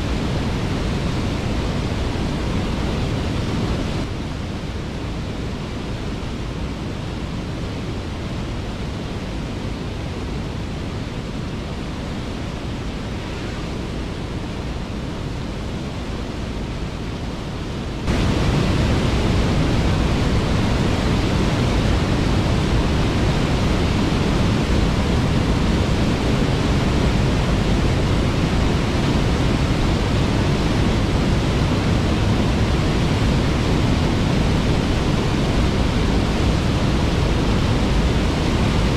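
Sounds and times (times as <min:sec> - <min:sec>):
waterfall rushing: 0:18.1 - 0:38.9.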